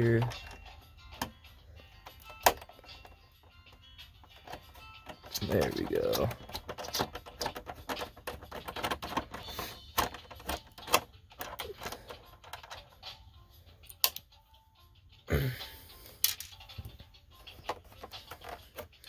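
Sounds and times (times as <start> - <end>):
plastic casing clicking: 4.3 - 12.8.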